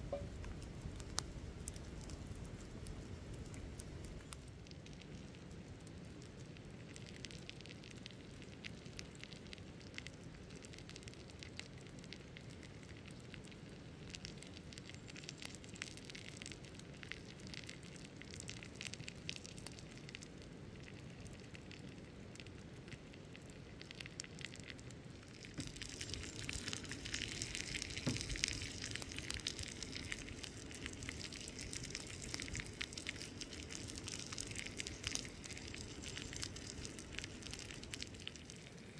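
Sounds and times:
wood fire crackling and popping: 0.0s - 38.9s
steak sizzling on hot rock: 22.9s - 38.9s.

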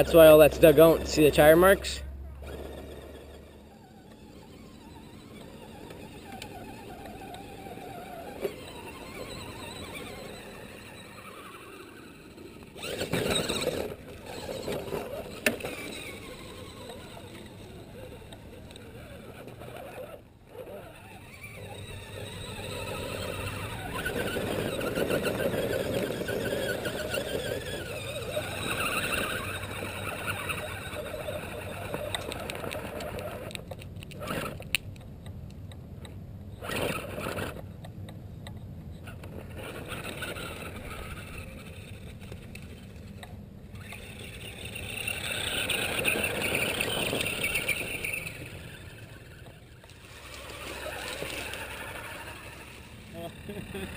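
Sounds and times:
electric motor whining: 0.0s - 34.8s, 39.1s - 53.9s
tyres scrabbling over rocks: 43.8s - 53.0s.

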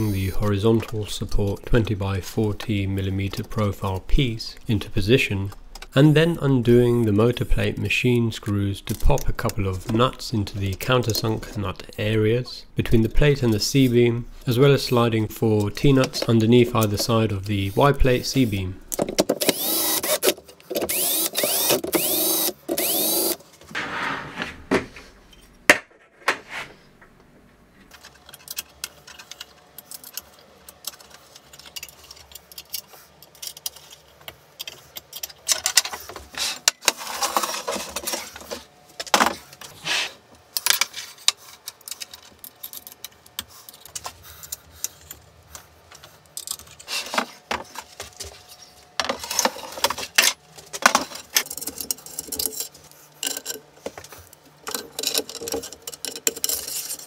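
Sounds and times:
cordless drill driving a screw: 19.4s - 20.3s, 20.9s - 23.4s
metal tools clicking and knocking: 27.9s - 36.0s, 50.2s - 53.7s, 54.6s - 57.0s.

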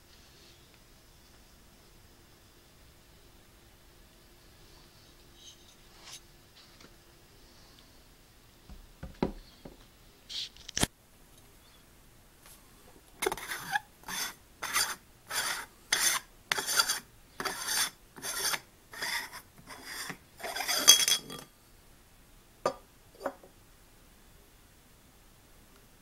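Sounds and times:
hand rubbing scope body: 13.2s - 20.9s.

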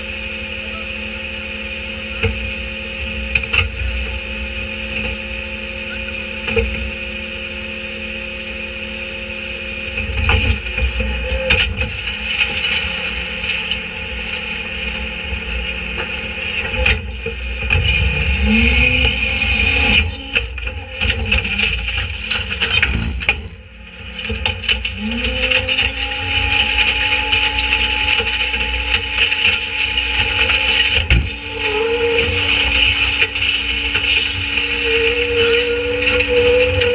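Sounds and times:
diesel engine running: 19.6s - 26.0s
hydraulic packer blade cycling: 19.8s - 25.6s, 30.8s - 32.4s
knocks and creaks from load: 21.0s - 23.9s, 31.1s - 31.4s.

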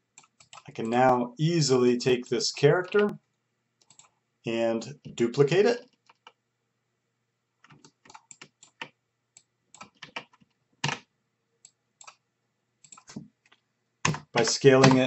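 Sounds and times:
keyboard typing: 0.2s - 1.2s, 3.8s - 4.1s, 7.7s - 8.9s, 9.8s - 11.0s, 12.8s - 13.2s, 14.0s - 15.0s.

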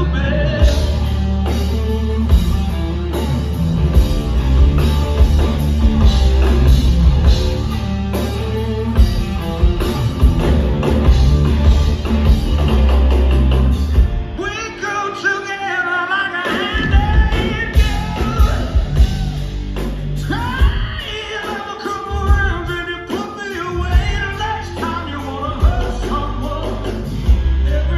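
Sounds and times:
man singing: 0.0s - 2.1s, 14.3s - 19.4s, 20.2s - 27.9s
drums with heavy bass: 0.0s - 14.8s, 16.4s - 27.9s
electric guitar: 0.0s - 27.9s.

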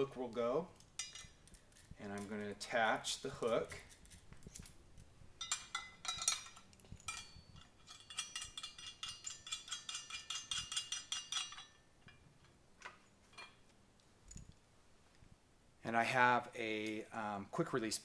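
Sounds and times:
metal hardware clinking: 0.0s - 13.7s.

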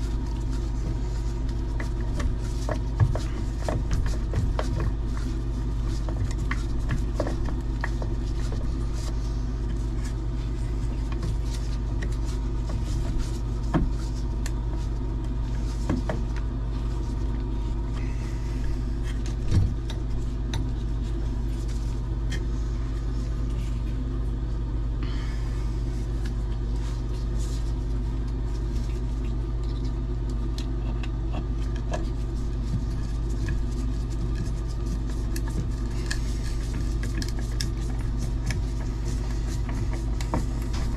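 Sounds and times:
low rumbling hum: 0.0s - 40.9s
copper pipe clicking and knocking: 1.5s - 9.1s.

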